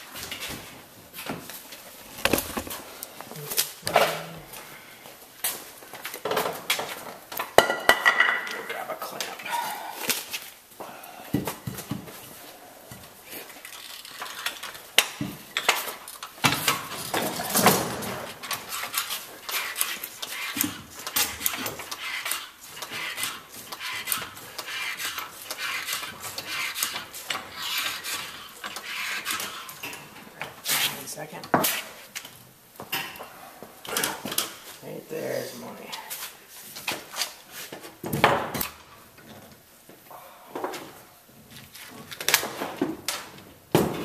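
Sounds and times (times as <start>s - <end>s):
rubbing and handling noise: 0.1s - 3.9s.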